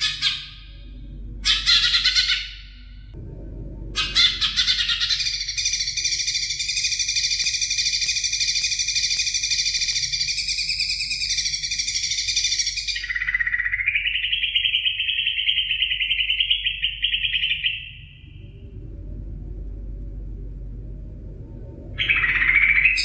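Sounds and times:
bird singing chattering trill: 0:04.0 - 0:18.2.

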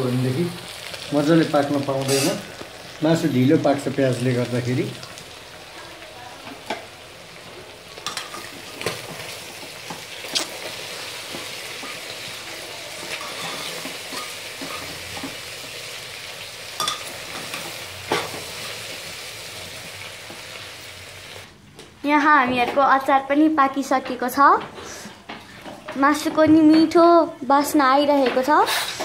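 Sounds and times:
meat and onion sizzling: 0:00.0 - 0:21.6.

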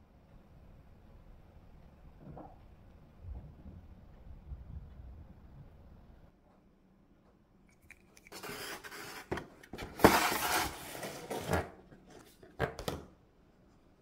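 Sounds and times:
cardboard box rustling and scraping: 0:08.4 - 0:11.7.

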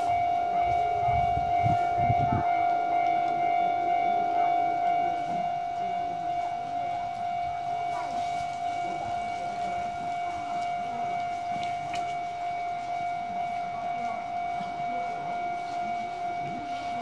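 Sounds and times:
level-crossing warning bell: 0:00.0 - 0:17.0.

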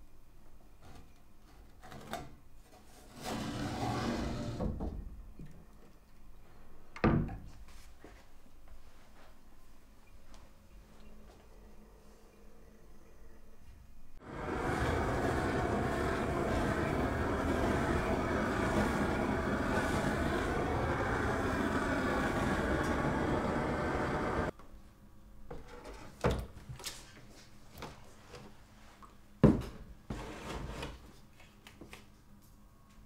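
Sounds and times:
gas flame burning: 0:14.2 - 0:24.6.

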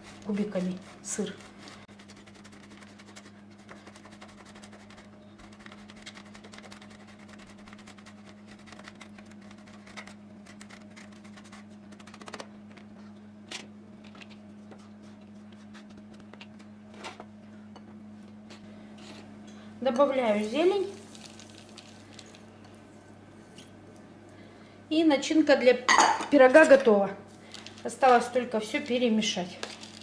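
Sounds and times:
cheese grating on metal grater: 0:00.0 - 0:12.0
steady low hum: 0:00.0 - 0:30.0.

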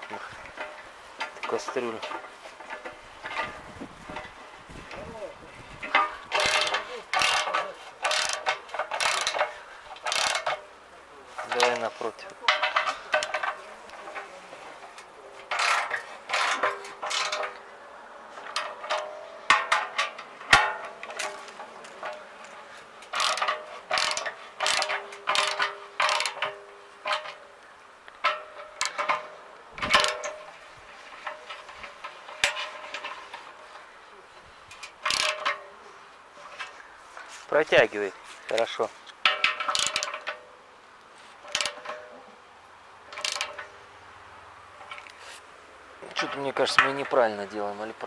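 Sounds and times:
ratchet wrench clicking: 0:05.9 - 0:10.6, 0:23.1 - 0:26.6, 0:34.7 - 0:35.5, 0:39.7 - 0:40.3, 0:41.5 - 0:41.8, 0:43.1 - 0:43.6.

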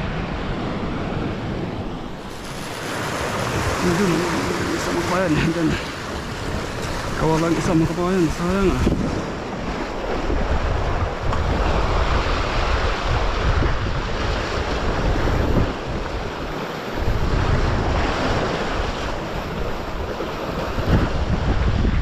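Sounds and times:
surf breaking over rocks: 0:00.0 - 0:22.0
wind buffeting microphone: 0:00.0 - 0:22.0.

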